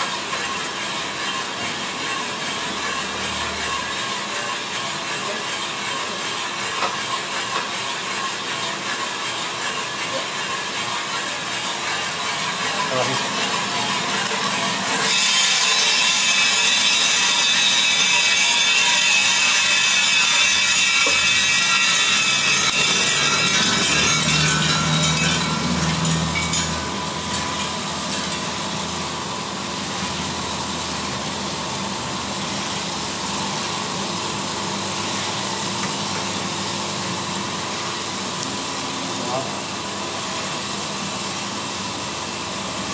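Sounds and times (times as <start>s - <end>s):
machine noise: 0.0s - 42.9s
coffee beans rattling into tray: 15.6s - 28.6s.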